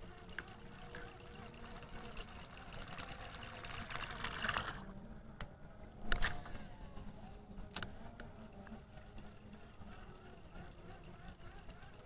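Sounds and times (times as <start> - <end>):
fishing reel clicks: 0.0 - 4.8
fishing reel whirring: 0.0 - 5.2, 6.0 - 12.0
low engine hum: 0.0 - 12.0.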